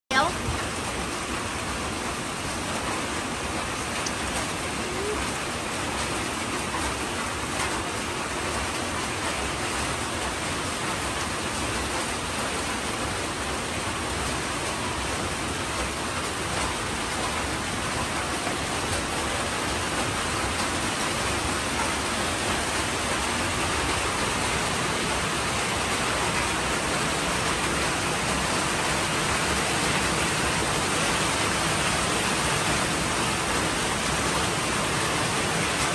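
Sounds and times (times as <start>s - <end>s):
steady rain falling: 0.1s - 35.9s.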